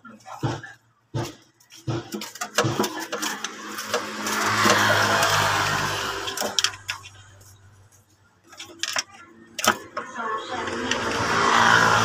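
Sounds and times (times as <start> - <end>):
metal tool clicks and knocks: 6.2 - 7.3, 8.5 - 10.1.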